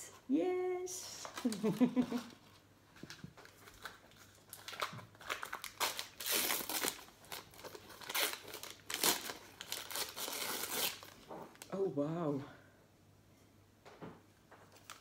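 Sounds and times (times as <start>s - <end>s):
wrapping paper crinkling: 1.2s - 11.6s.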